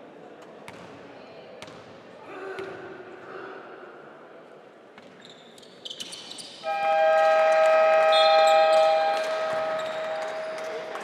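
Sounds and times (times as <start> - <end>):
arena buzzer horn: 6.6 - 10.6.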